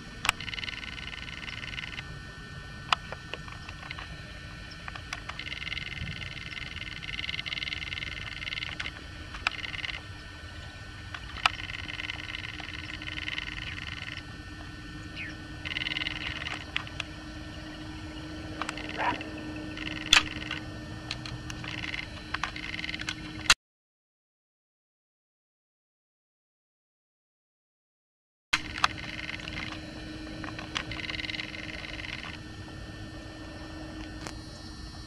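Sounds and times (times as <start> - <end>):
faint steady hum: 0.0 - 23.6, 28.6 - 35.0
chorus of small calling animals: 17.4 - 20.6.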